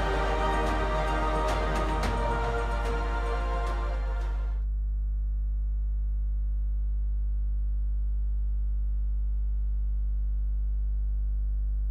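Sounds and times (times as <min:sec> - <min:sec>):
deep sustained music drone: 0:00.0 - 0:04.6.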